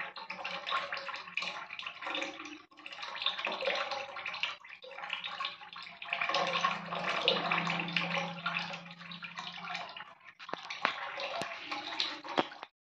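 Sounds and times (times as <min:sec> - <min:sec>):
tap water pouring and splashing: 0:00.0 - 0:12.7
low hum: 0:06.2 - 0:10.4.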